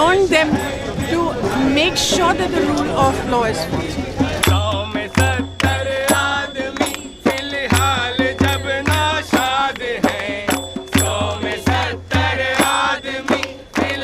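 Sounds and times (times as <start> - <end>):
crowd chanting in unison: 0.0 - 14.0
hand drum beat: 0.0 - 14.0
hand clapping: 4.4 - 14.0.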